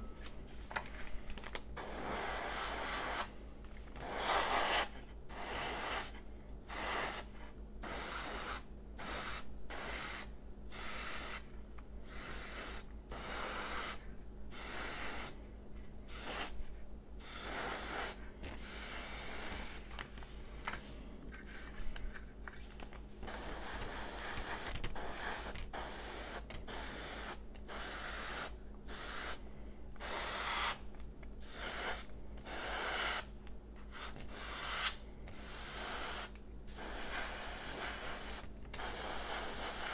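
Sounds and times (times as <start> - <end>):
airbrush spraying hissing bursts: 1.8 - 3.3, 4.0 - 11.4, 12.1 - 15.4, 16.1 - 16.6, 17.2 - 19.8, 23.3 - 29.4, 30.0 - 30.8, 31.4 - 39.9.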